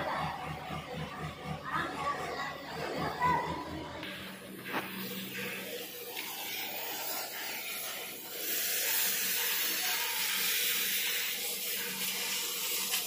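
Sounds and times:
cutting torch hissing: 4.4 - 13.0.

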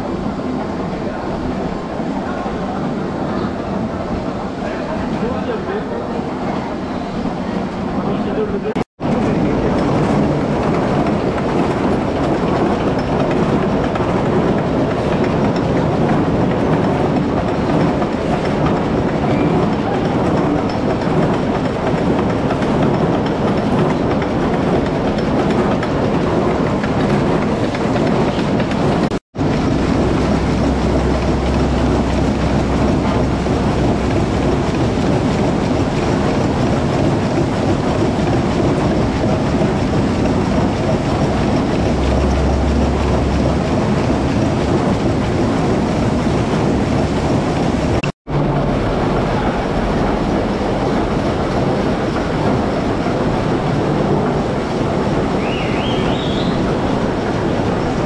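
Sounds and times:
rushing water: 7.9 - 58.0
drum washer clattering carrots: 9.0 - 58.0
deep hum: 29.4 - 36.1, 39.0 - 52.2.

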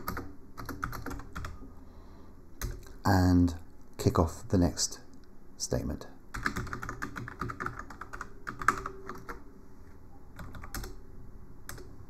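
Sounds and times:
typing on computer keyboard: 0.0 - 1.6, 2.6 - 3.0, 6.3 - 9.4, 10.4 - 11.0, 11.7 - 11.9.

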